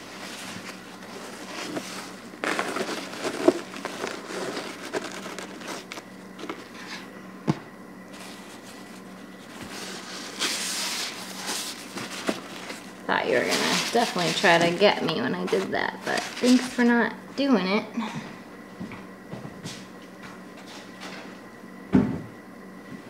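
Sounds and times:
paper towel crinkling and rubbing: 0:00.0 - 0:07.0, 0:08.1 - 0:16.9.

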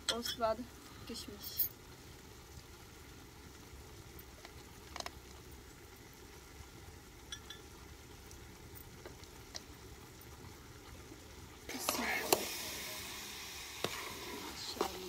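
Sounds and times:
low steady background noise: 0:00.0 - 0:15.0
stirring in a steel pot: 0:11.7 - 0:15.0.

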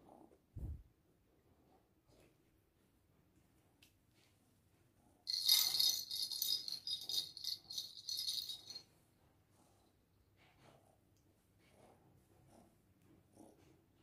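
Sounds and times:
jingle bells in cat toy rattling: 0:05.3 - 0:08.9.

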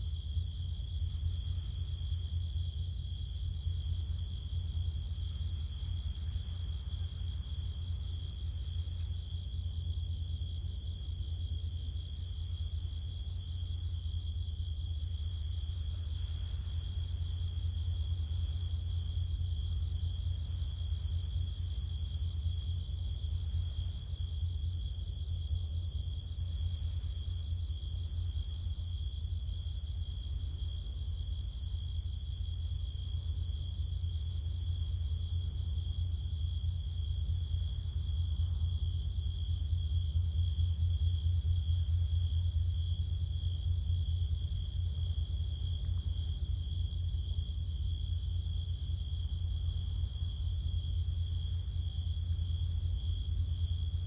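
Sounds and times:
crickets trilling: 0:00.0 - 0:54.0.

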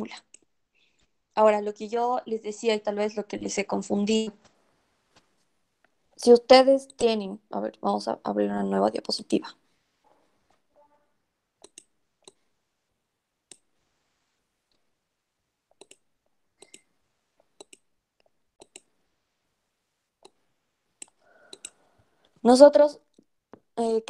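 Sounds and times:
computer mouse clicking: 0:06.8 - 0:07.1, 0:11.6 - 0:12.4, 0:13.5 - 0:13.7, 0:15.7 - 0:17.9, 0:18.6 - 0:18.9, 0:20.2 - 0:20.4, 0:21.0 - 0:21.8.

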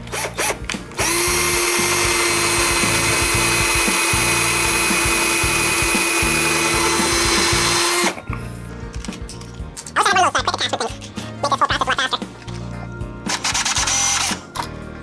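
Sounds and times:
electric drill whining into wood: 0:00.0 - 0:08.2.

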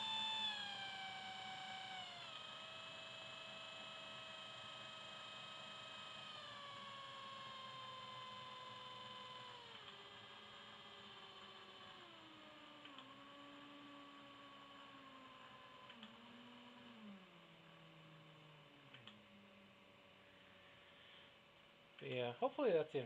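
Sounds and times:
starter motor whine: 0:05.2 - 0:19.8.

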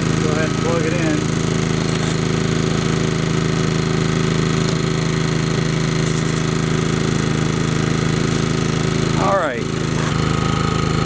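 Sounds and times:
generator engine hum: 0:00.0 - 0:11.0.

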